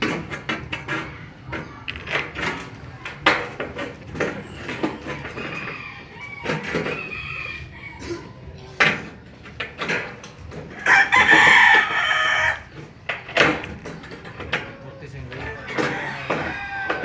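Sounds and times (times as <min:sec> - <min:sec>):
rooster crowing: 0:05.3 - 0:08.3, 0:10.8 - 0:12.7, 0:15.6 - 0:17.0.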